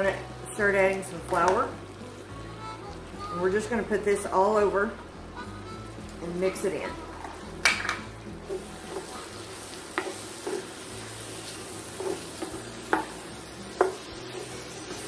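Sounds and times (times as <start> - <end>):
food sizzling in a skillet: 0.0 - 15.0
wooden spatula scraping a pan: 8.5 - 15.0.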